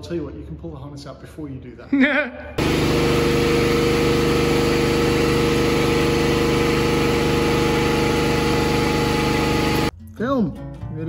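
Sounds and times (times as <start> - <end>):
motor humming: 2.6 - 9.9.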